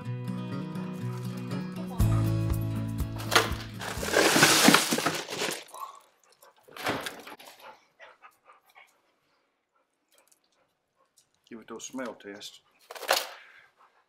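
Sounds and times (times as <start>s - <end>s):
crushed ice rattling and crunching: 3.1s - 5.9s
rustling: 3.2s - 5.8s.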